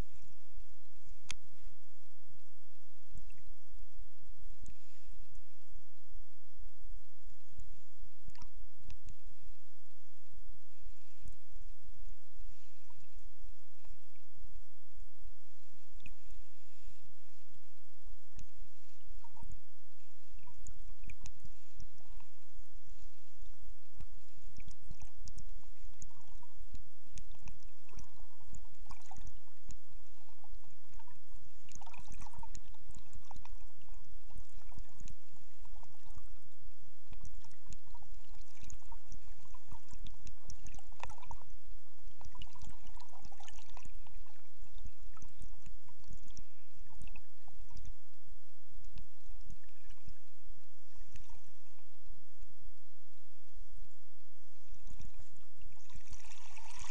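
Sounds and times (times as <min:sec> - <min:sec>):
underwater rumble of moving water: 0:00.0 - 0:56.9
small crackles and clicks: 0:01.0 - 0:01.7, 0:03.1 - 0:03.6, 0:07.2 - 0:09.3, 0:18.2 - 0:48.2, 0:48.8 - 0:52.5.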